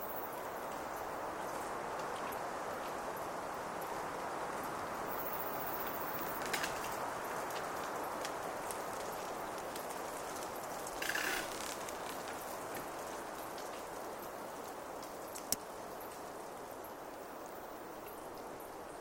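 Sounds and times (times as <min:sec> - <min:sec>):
forest rushing hiss: 0:00.0 - 0:19.0
small ticks: 0:05.8 - 0:13.9, 0:14.6 - 0:16.3.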